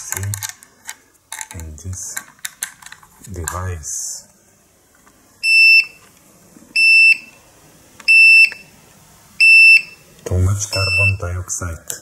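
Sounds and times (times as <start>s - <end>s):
high-pitched alarm beeps: 5.4s - 6.0s, 6.8s - 7.4s, 8.1s - 8.7s, 9.4s - 10.0s, 10.7s - 11.2s.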